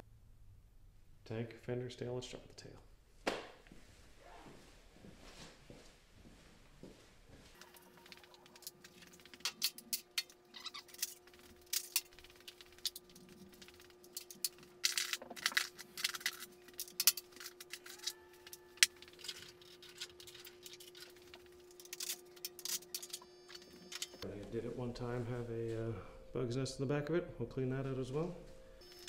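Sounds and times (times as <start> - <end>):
faint steady hum: 0.0 - 29.0
hand tools clicking and rattling: 7.6 - 24.2.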